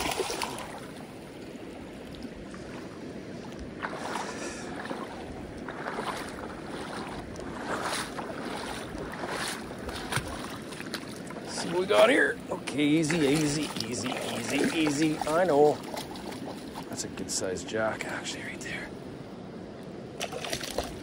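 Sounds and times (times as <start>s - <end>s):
fish splashing in water: 0.0s - 1.2s, 3.8s - 11.8s, 12.6s - 16.9s, 20.2s - 21.0s
rushing water: 0.0s - 19.0s, 19.8s - 21.0s
wind: 0.0s - 21.0s.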